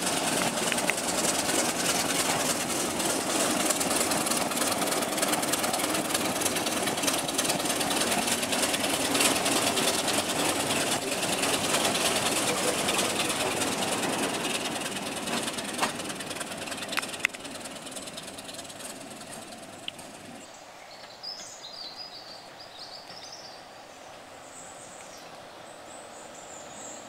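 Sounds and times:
diesel train engine and wheels: 0.0 - 20.5
train wheels clicking: 0.0 - 20.5
birds chirping: 0.0 - 27.0.

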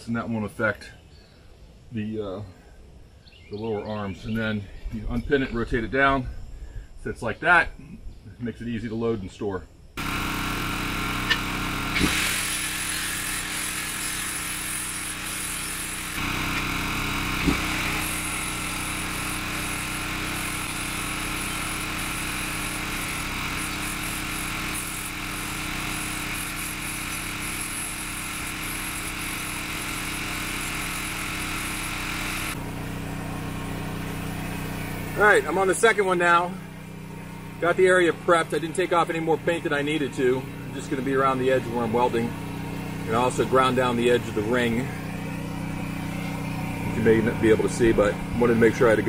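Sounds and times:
angle grinder grinding metal: 10.0 - 32.7, 37.6 - 49.0.

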